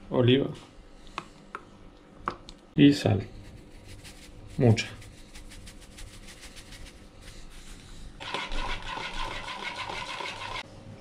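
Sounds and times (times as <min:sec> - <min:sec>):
salt shaker ticking: 0:03.6 - 0:07.1
spoon scraping plastic bowl: 0:08.2 - 0:10.6.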